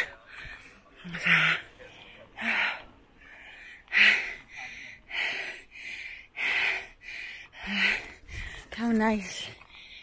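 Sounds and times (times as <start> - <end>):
person breathing hard: 0.0 - 8.7.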